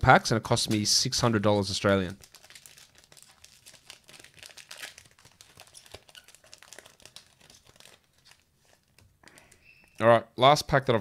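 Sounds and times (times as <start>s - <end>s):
wrapper crinkling: 1.8s - 10.0s.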